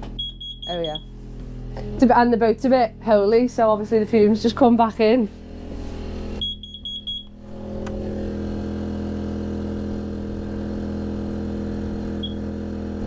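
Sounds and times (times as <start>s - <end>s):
generator engine running: 0.0s - 13.0s
alarm beeping rapidly: 0.2s - 1.1s, 6.4s - 7.4s.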